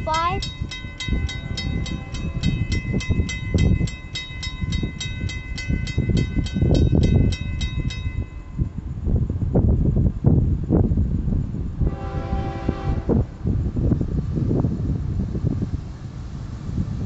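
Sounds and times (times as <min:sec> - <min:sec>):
railroad bell ringing: 0:00.0 - 0:08.8
low rumble of train: 0:00.0 - 0:17.0.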